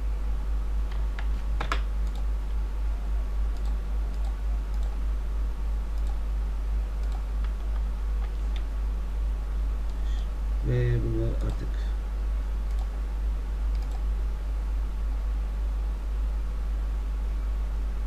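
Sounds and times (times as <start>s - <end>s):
low electrical hum: 0.0s - 18.0s.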